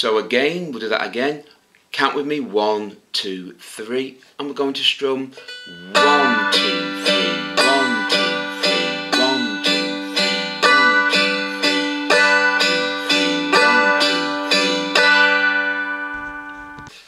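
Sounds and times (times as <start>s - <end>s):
dulcimer strummed: 5.4s - 17.0s.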